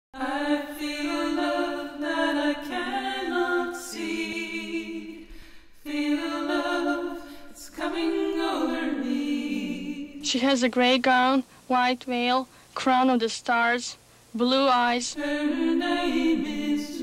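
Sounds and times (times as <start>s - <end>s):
choir singing unaccompanied: 0.2s - 11.0s, 15.0s - 17.0s.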